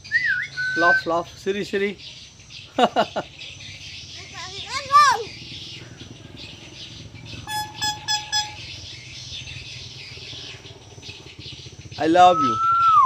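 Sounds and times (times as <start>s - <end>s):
short horn-like toots: 7.5s - 8.6s.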